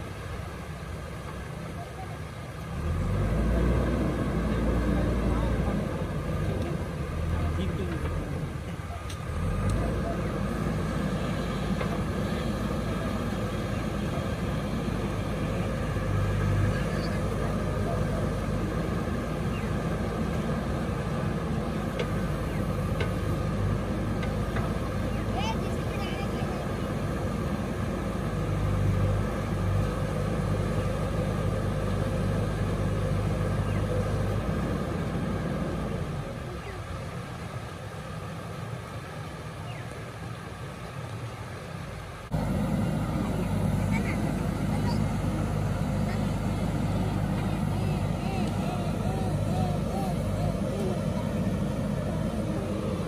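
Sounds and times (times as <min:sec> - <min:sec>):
diesel engine running: 0:00.0 - 0:53.0
river rushing: 0:00.0 - 0:53.0
fast-flowing river: 0:34.2 - 0:53.0.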